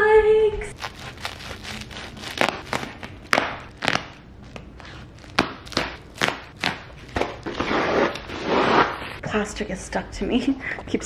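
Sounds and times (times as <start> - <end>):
plastic rustling: 0.7 - 9.2.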